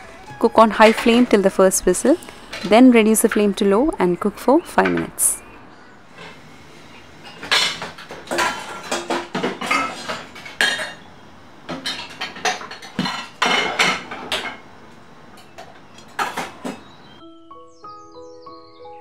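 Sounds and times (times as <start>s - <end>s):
dishes clattering in a steel sink: 7.2s - 14.7s, 15.4s - 16.9s.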